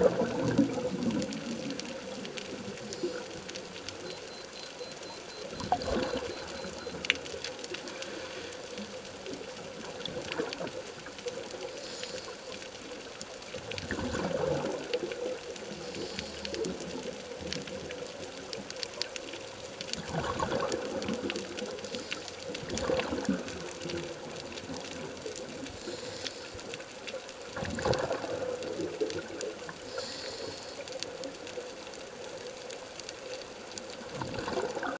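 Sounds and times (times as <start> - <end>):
exhaled bubbles underwater: 0.0 - 4.4, 5.0 - 8.2, 9.4 - 11.7, 13.4 - 18.6, 19.8 - 26.0, 27.2 - 30.3, 33.8 - 34.9
regulator inhale hiss: 7.9 - 8.7, 11.6 - 12.7, 15.8 - 16.6, 21.9 - 22.4, 25.7 - 26.8, 29.8 - 31.2.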